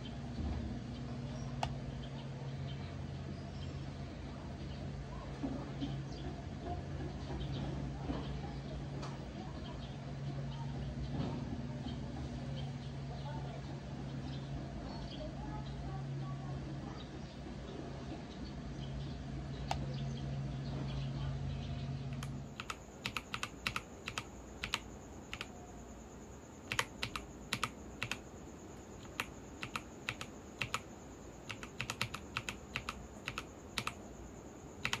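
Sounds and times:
low steady hum: 0:00.0 - 0:35.0
keyboard typing: 0:22.1 - 0:35.0.

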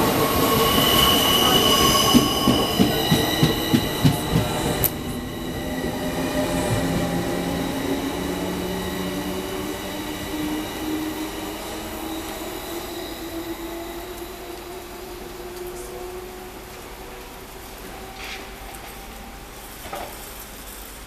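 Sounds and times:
train low hum: 0:00.0 - 0:21.0.

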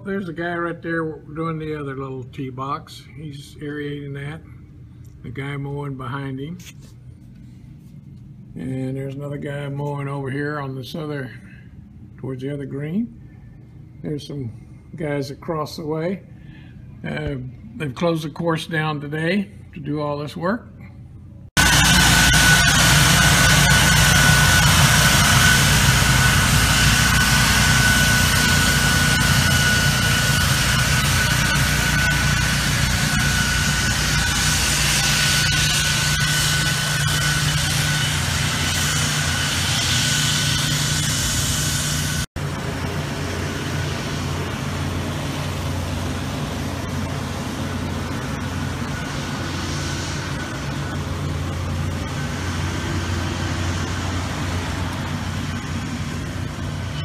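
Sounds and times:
ride-on mower engine running: 0:21.6 - 0:56.9
debris blower rushing with whine: 0:21.6 - 0:57.0.

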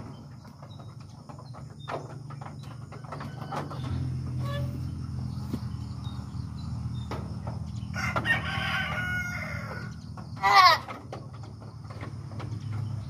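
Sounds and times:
rooster crowing: 0:07.8 - 0:10.8
goat bleating: 0:10.4 - 0:10.9.

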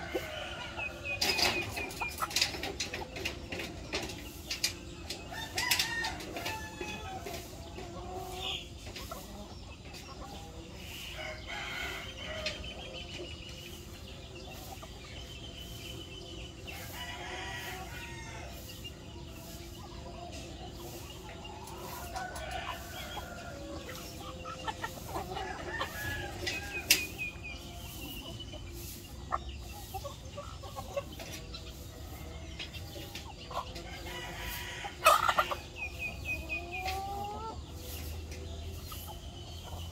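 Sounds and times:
roosters crowing: 0:00.0 - 0:08.7, 0:10.4 - 0:13.1, 0:16.4 - 0:18.8, 0:21.2 - 0:29.8, 0:31.4 - 0:39.1
chickens clucking: 0:00.0 - 0:39.9.

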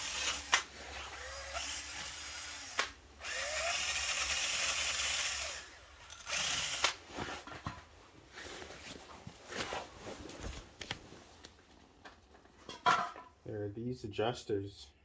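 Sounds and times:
cordless drill running: 0:00.0 - 0:07.0.

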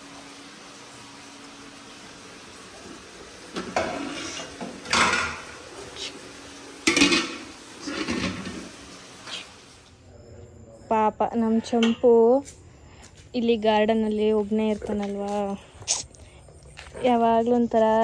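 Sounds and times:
metal pots clanking together: 0:03.5 - 0:05.6, 0:06.8 - 0:08.8.

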